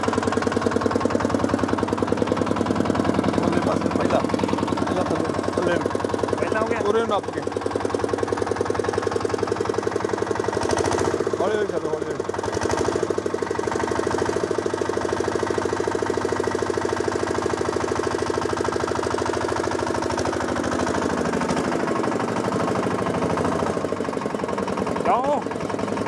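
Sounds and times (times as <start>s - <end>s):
small engine chugging: 0.0s - 26.0s.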